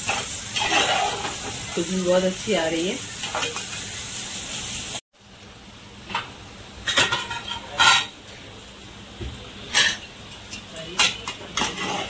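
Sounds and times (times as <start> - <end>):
ladle stirring in metal pot: 0.0 - 1.7
food sizzling: 0.0 - 12.0
pot simmering: 0.0 - 12.0.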